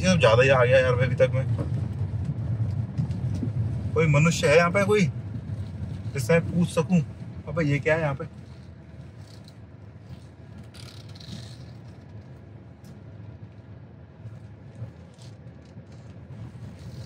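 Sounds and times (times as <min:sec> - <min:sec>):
car engine and road hum: 0:00.0 - 0:17.0.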